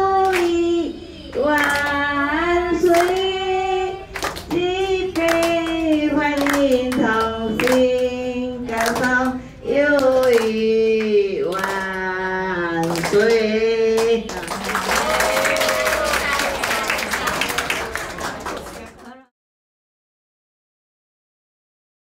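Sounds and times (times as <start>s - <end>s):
hands clapping in time: 14.0s - 19.1s.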